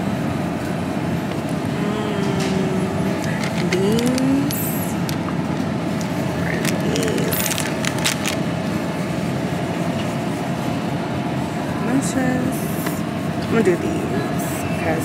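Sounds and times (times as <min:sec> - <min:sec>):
refrigerator hum: 0:00.0 - 0:15.0
plastic packaging crinkling: 0:03.1 - 0:05.3, 0:06.5 - 0:08.5.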